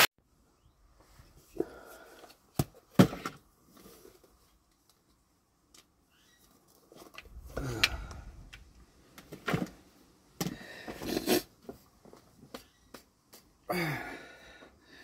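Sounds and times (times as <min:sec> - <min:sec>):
person breathing: 0:01.5 - 0:02.4, 0:07.3 - 0:08.6, 0:10.4 - 0:11.3, 0:13.7 - 0:15.0
person sighing: 0:07.4 - 0:08.5, 0:13.7 - 0:15.0.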